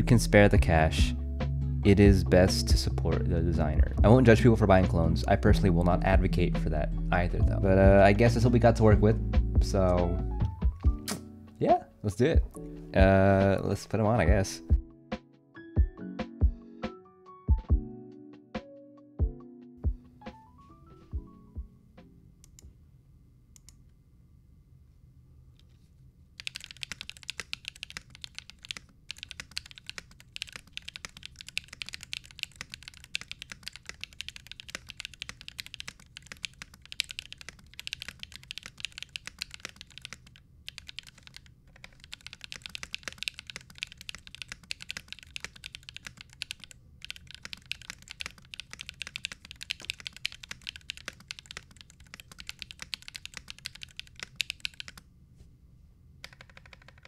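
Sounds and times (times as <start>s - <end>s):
mechanical keyboard typing: 26.4s - 55.0s, 56.2s - 57.0s.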